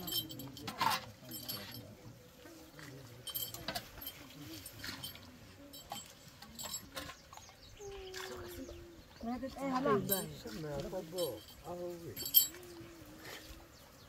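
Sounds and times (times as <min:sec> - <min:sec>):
metal bowl clinking on pot: 0:00.0 - 0:02.0, 0:03.2 - 0:07.2
murmured voices: 0:00.0 - 0:14.0.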